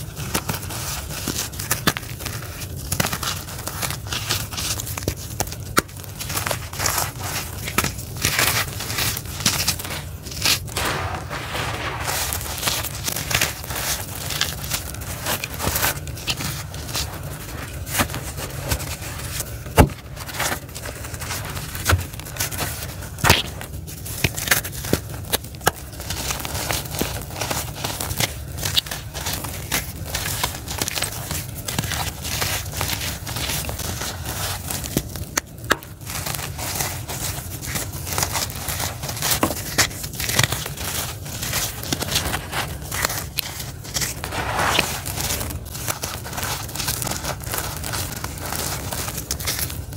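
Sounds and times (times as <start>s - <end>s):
hands crunching charcoal grit: 0.0s - 49.9s
steady low rumble: 9.3s - 20.3s.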